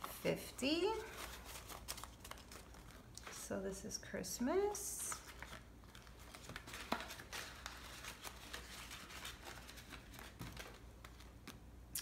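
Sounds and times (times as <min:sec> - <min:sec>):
paper rustling and tapping: 0:05.2 - 0:11.6.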